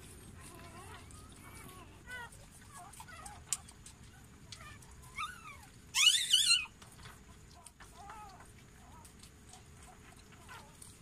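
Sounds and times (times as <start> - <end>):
puppy squealing: 5.0 - 6.8.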